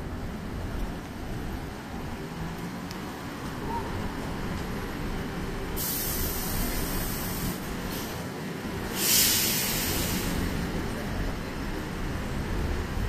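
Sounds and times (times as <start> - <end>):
low rumble of city traffic: 0.0 - 13.0
loud hiss: 5.8 - 8.2, 8.8 - 10.6.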